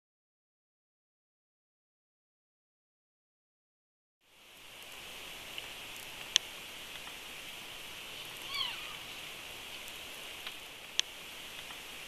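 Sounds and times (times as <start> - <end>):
high-pitched night hiss: 4.3 - 12.0
animal call with bending pitch: 8.4 - 9.1.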